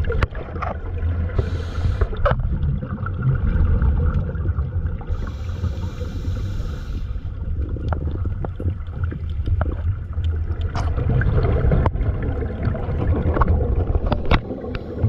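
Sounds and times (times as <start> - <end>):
noise haze: 1.3 - 2.3, 5.1 - 7.4.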